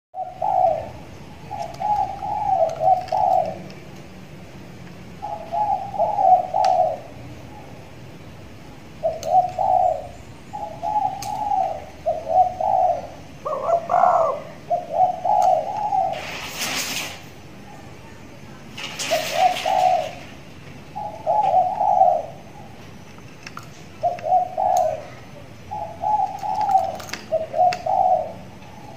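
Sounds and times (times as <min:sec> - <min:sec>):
dove cooing: 0:00.2 - 0:03.9, 0:05.2 - 0:07.9, 0:08.9 - 0:17.9, 0:18.8 - 0:22.8, 0:23.8 - 0:28.9.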